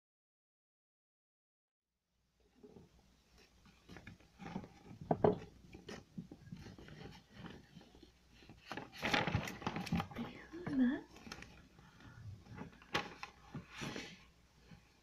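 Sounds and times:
paper rustling: 3.4s - 14.9s.

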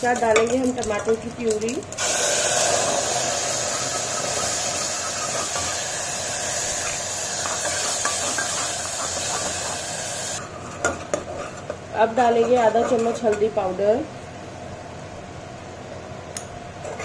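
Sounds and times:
puree sizzling in hot oil: 0.0s - 10.4s.

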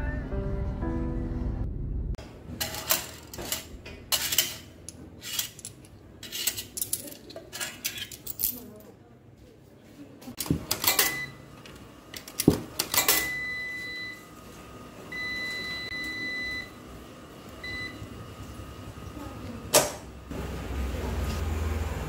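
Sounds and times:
coins clinking: 2.6s - 8.8s.

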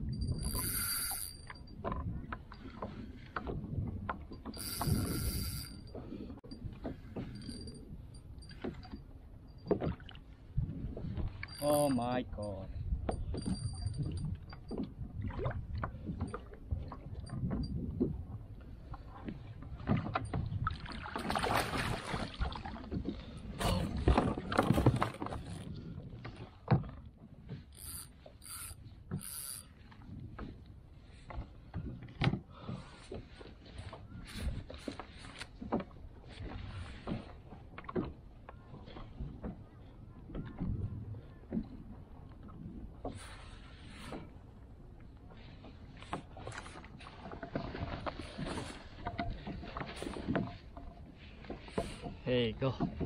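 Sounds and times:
water and wind noise: 0.0s - 53.0s
fishing reel drag buzzing: 0.2s - 1.6s, 4.5s - 5.9s, 27.8s - 29.8s
water splashing: 20.6s - 25.4s
gear knocking against kayak: 21.2s - 43.3s, 45.6s - 53.0s.

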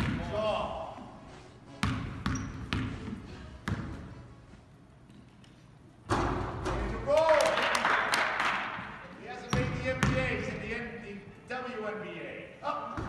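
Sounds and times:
basketball bouncing on gym floor: 0.0s - 0.4s, 1.8s - 4.1s, 9.5s - 10.4s.

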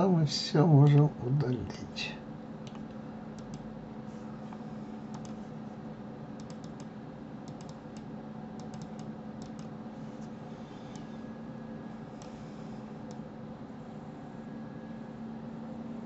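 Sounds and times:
steady low hum: 0.0s - 16.0s
keyboard and mouse clicking: 2.6s - 3.7s, 5.1s - 5.4s, 6.4s - 9.8s.

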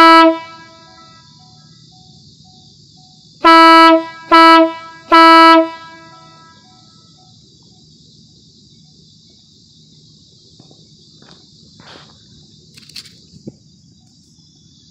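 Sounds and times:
air horn blasts: 0.0s - 1.4s, 3.4s - 7.1s.

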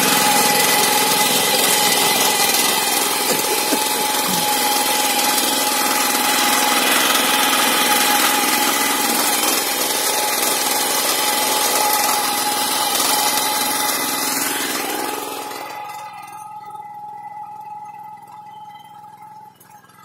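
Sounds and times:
petrol engine running: 0.0s - 16.1s.

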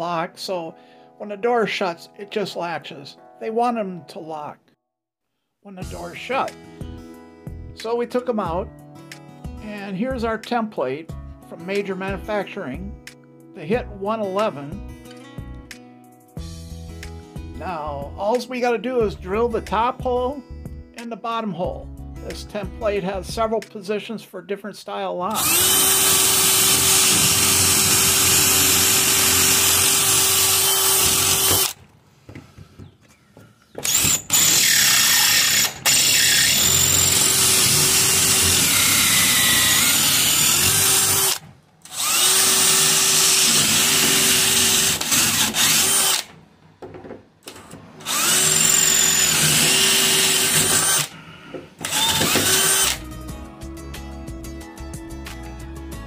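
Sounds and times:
cordless drill boring wood: 25.4s - 31.8s, 33.8s - 46.3s, 48.0s - 51.2s, 51.8s - 53.0s.

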